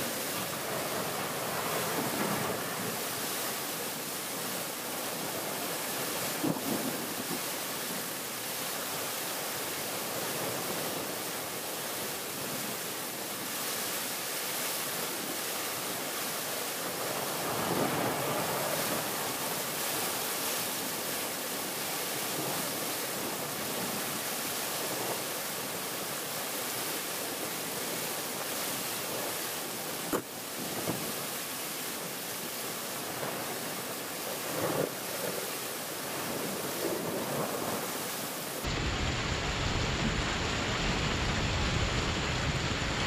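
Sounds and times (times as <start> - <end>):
heavy rain pouring: 0.0 - 13.2, 29.0 - 43.0.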